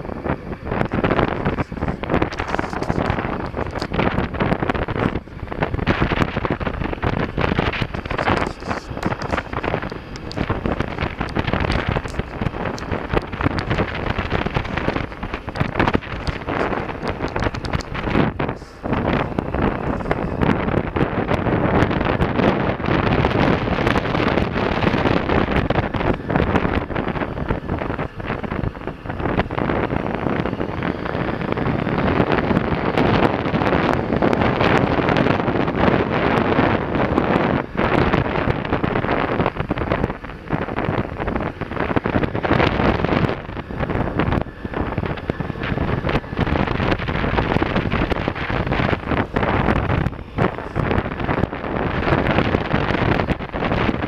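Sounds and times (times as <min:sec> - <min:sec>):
motorcycle engine running: 0:00.0 - 0:54.0
wind buffeting microphone: 0:00.0 - 0:54.0.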